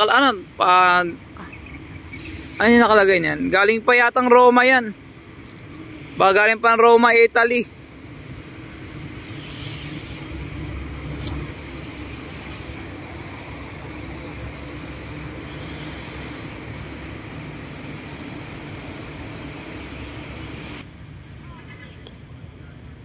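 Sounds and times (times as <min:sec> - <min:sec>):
distant road traffic rumble: 0:00.0 - 0:23.0.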